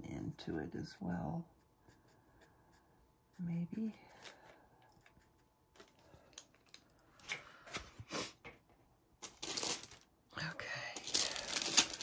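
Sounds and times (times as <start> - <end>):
pencil scratching on sanded paper: 0.4 - 4.1, 4.9 - 5.6.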